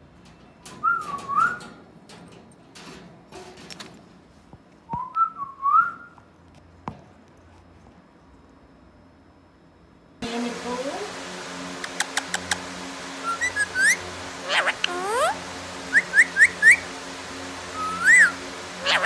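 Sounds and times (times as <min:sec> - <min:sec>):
whistled gliding phrases: 0:13.2 - 0:14.0, 0:15.0 - 0:16.9, 0:17.7 - 0:18.4.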